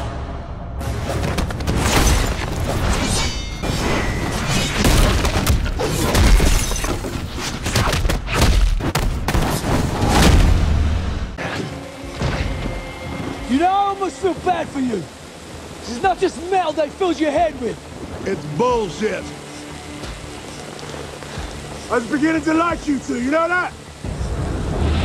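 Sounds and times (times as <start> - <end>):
cinematic music: 0.0 - 6.0.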